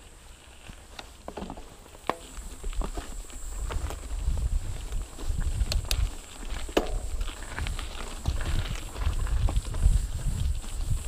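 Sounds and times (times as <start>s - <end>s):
bike rattling: 0.0s - 11.0s
tyres crunching over gravel: 0.0s - 11.0s
wind rumble on microphone: 2.6s - 11.0s.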